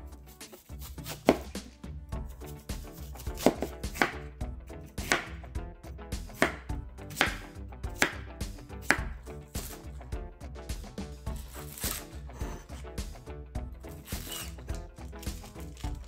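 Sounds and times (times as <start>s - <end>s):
knife cutting pear on wooden board: 0.3s - 4.3s, 4.9s - 5.4s, 6.3s - 8.2s, 8.8s - 9.9s, 11.3s - 12.9s, 13.9s - 16.0s.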